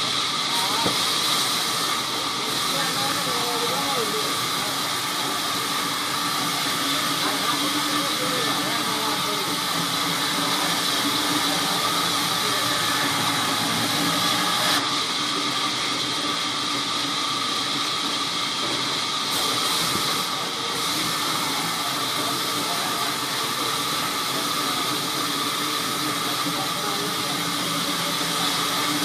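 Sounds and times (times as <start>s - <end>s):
band saw humming: 0.0s - 14.9s, 19.3s - 29.0s
saw blade hissing through log: 0.0s - 14.9s.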